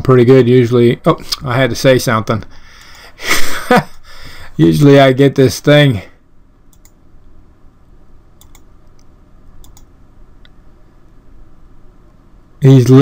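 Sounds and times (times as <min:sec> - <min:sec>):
low room hum: 0:00.0 - 0:13.0
faint computer mouse clicks: 0:06.7 - 0:07.0, 0:08.4 - 0:10.6.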